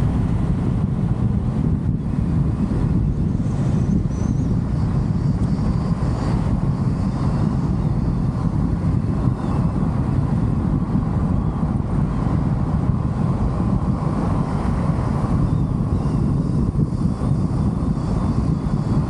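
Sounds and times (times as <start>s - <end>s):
car engine and tyre rumble: 0.0s - 19.0s
wind noise: 0.0s - 19.0s.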